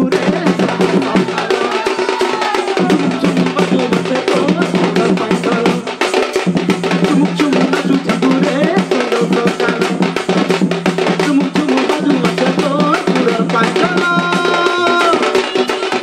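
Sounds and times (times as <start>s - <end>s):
drums beating fast rhythm: 0.0s - 16.0s.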